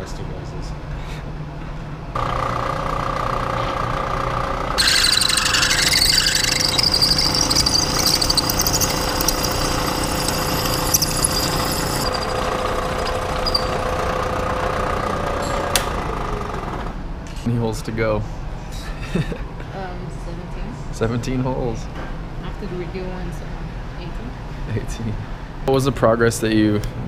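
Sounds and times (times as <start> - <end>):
drill bit screeching in steel: 4.8 - 14.0
milling machine spindle humming: 4.8 - 16.8.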